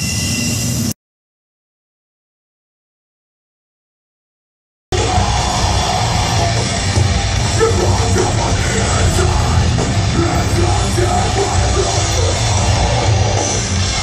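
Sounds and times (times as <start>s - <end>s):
live heavy rock band: 4.9s - 14.0s.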